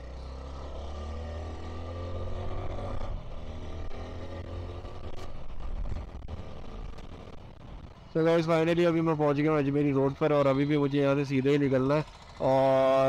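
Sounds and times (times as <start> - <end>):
wind rumble on microphone: 2.7 - 8.2.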